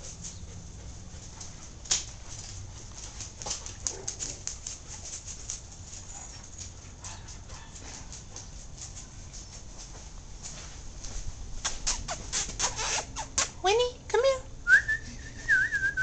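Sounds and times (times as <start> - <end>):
dog claws clicking on concrete: 1.2 - 9.6.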